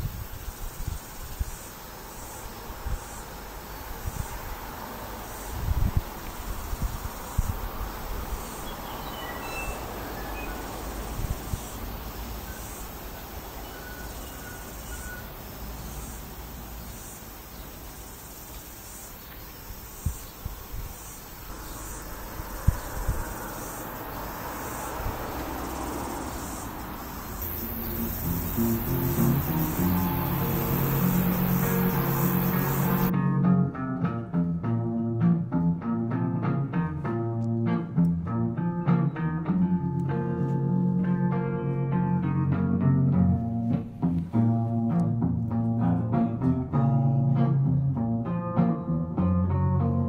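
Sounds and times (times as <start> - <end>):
insects buzzing: 0.0 - 33.1
steady hiss: 0.0 - 33.1
music: 27.8 - 50.0.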